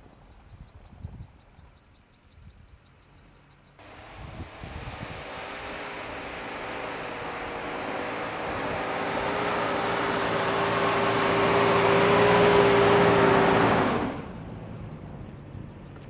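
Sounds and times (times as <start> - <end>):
tyres churning snow: 3.8 - 15.2
engine whine: 3.8 - 16.0.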